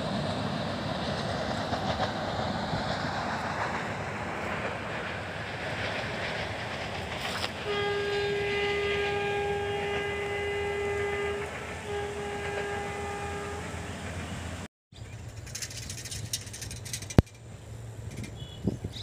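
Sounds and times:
outdoor ambience: 0.0 - 19.0
train running noise: 0.0 - 19.0
train horn blasts: 7.2 - 14.7.

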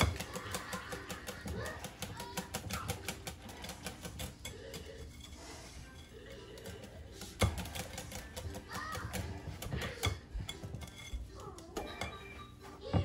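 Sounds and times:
whisk clicking against glass bowl: 0.0 - 5.2.

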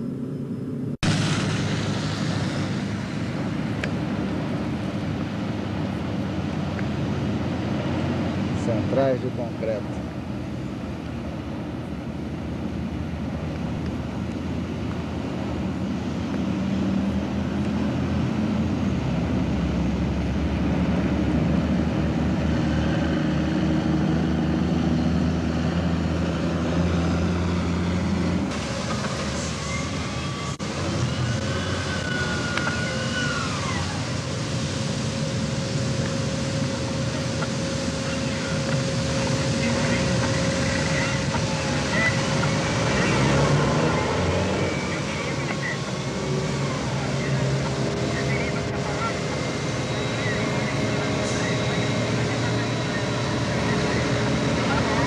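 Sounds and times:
heavy engine droning: 0.0 - 55.0
machine whine: 0.0 - 55.0
steady hum: 32.9 - 43.1.

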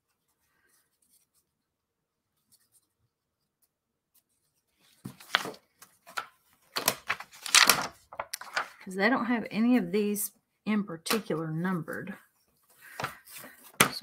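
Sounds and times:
wooden pieces scraping: 5.1 - 8.8.

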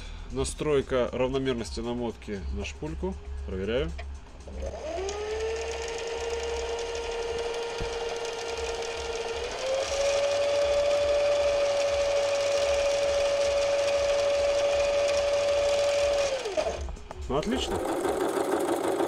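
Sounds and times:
sewing machine motor whine: 4.5 - 19.0.

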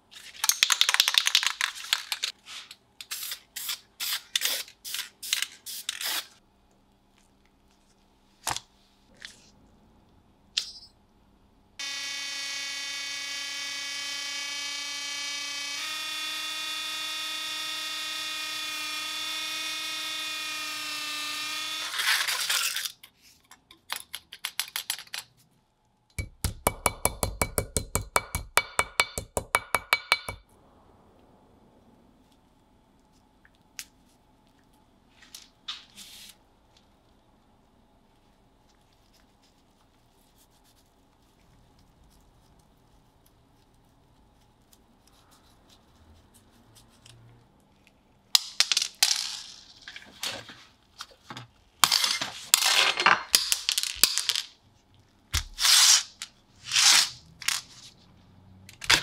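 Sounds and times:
rotary tool whining: 11.8 - 22.3.

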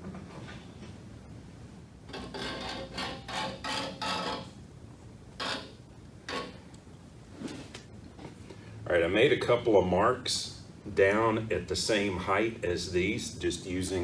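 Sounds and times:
metal scratching on steel: 2.1 - 4.6, 5.4 - 6.6.

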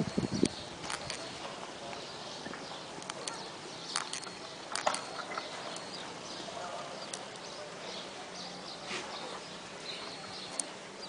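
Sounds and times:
faint high bird chirps: 2.0 - 10.7.

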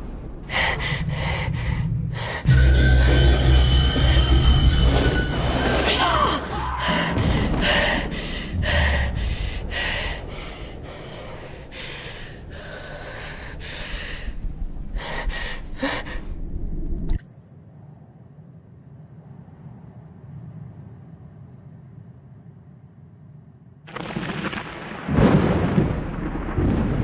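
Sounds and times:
low rumble: 0.0 - 5.8, 6.4 - 17.2
woman gasping breaths: 6.8 - 16.5.

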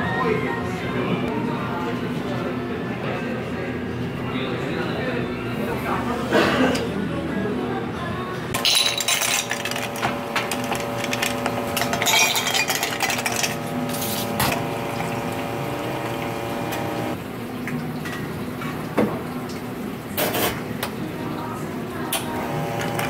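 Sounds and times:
ice cubes clinking into glass: 8.6 - 14.6.

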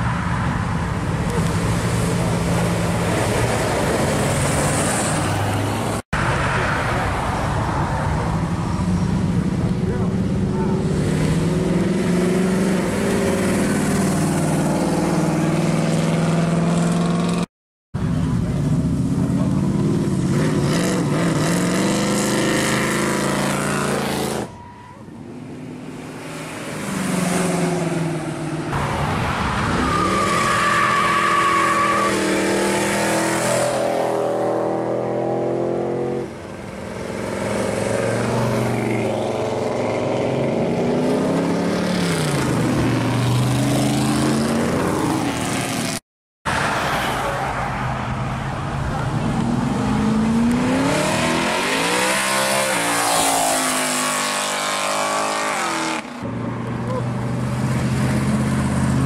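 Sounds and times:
cars accelerating and revving: 0.0 - 59.0
high squeal: 24.4 - 25.2.

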